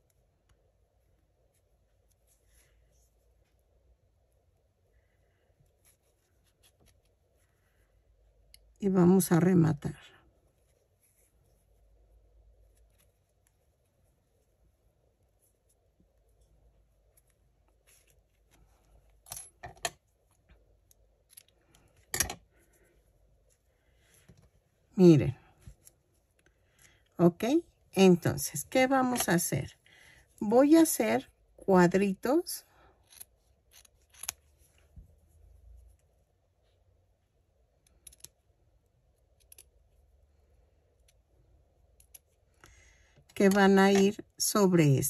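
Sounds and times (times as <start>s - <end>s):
low room hum: 0.0s - 45.0s
faint clicks and handling noises: 10.2s - 24.8s, 25.5s - 27.2s, 32.9s - 44.2s.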